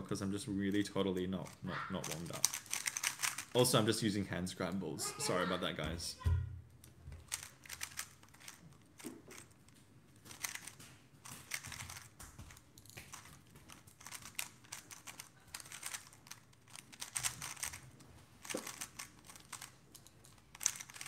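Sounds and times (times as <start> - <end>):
puzzle cube plastic clicking: 0.7 - 3.6, 6.8 - 21.0.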